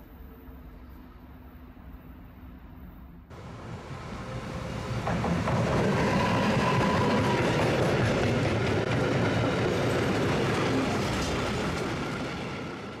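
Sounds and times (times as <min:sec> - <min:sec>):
train wheels rattling on track: 0:03.3 - 0:13.0.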